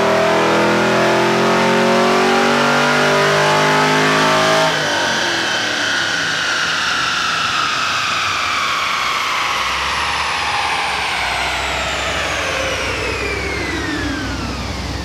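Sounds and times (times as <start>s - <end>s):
car engine whine falling: 0.0s - 15.0s
low rumble: 4.7s - 15.0s.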